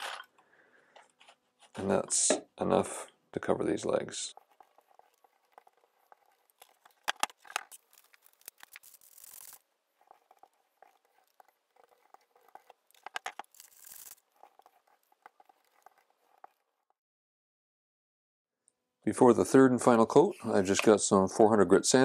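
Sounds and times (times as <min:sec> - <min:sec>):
paint roller sticky crackling: 0:04.3 - 0:16.7.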